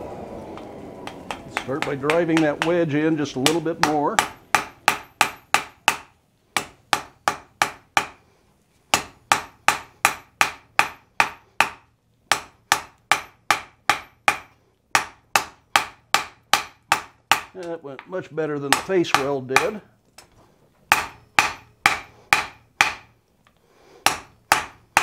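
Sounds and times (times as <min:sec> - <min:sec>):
hammer blows on hot iron anvil: 0:00.6 - 0:06.0.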